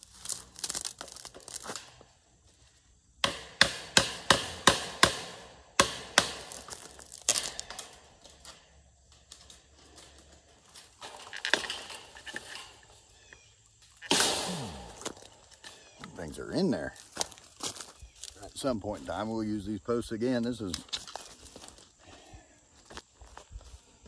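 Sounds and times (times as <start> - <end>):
metal clicks and scraping: 6.8 - 13.1.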